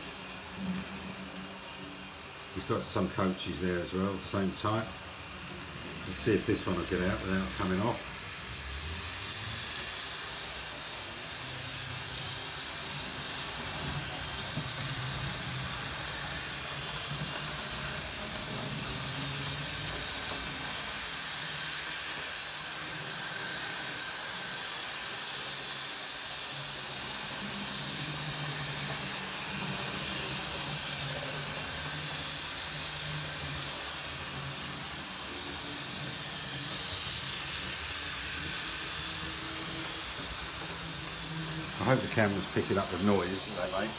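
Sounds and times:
model train motors running: 0.0s - 43.9s.

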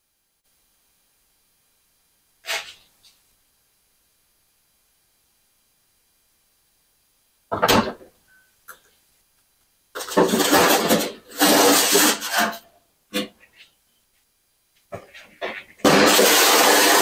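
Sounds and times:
snowblower rattling and scraping: 10.0s - 12.4s, 15.8s - 17.0s.

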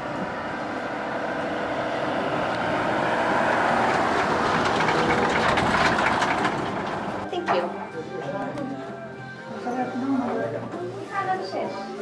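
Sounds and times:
trailer rattle: 0.0s - 7.8s.

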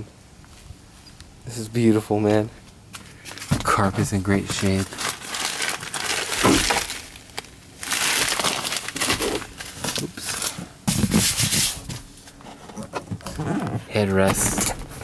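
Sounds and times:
plastic sheet crinkling: 3.2s - 11.9s.

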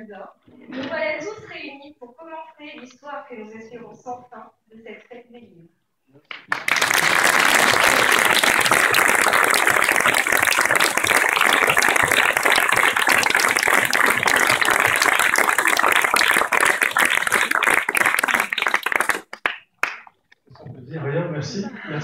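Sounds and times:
crowd applause: 6.4s - 20.0s.

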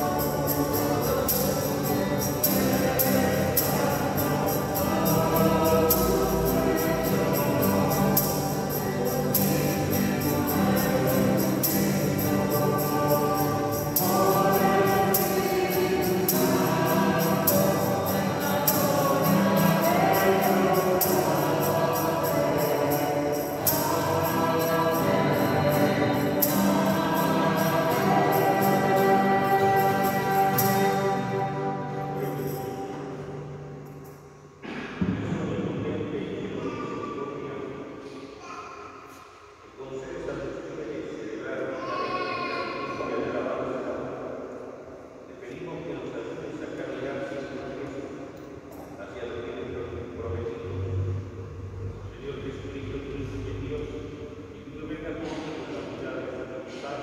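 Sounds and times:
choir singing a hymn: 0.0s - 33.8s.

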